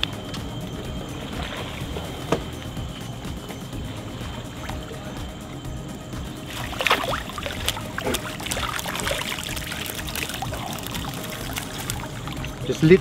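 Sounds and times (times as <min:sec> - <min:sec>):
water dripping and trickling: 0:00.0 - 0:13.0
water splashing off a trap: 0:06.5 - 0:12.6.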